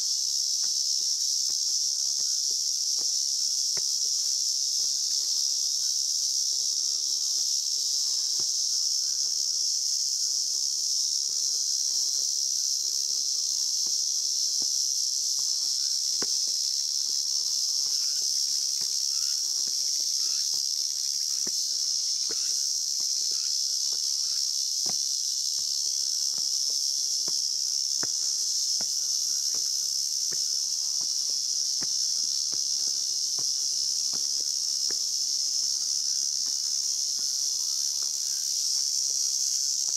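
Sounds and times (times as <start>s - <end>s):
insects droning: 0.0s - 39.9s
footsteps on stone steps: 0.6s - 3.9s, 13.8s - 38.9s.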